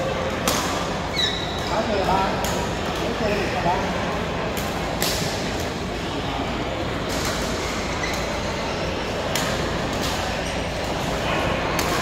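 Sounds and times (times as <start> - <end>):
racket hitting shuttlecock: 0.4 - 0.8, 4.6 - 5.8, 11.7 - 12.0.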